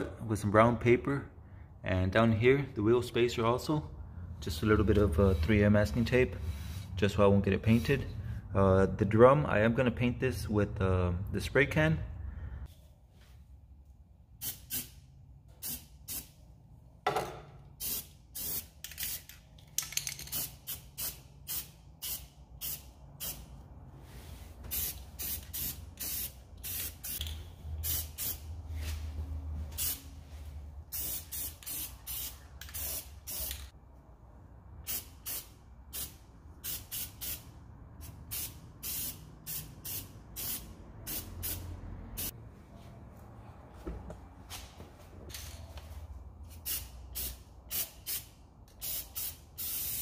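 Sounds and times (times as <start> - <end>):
spray paint can hissing: 17.8 - 19.3, 24.7 - 28.4, 30.9 - 33.7, 34.9 - 37.4, 38.0 - 41.6, 46.6 - 50.0.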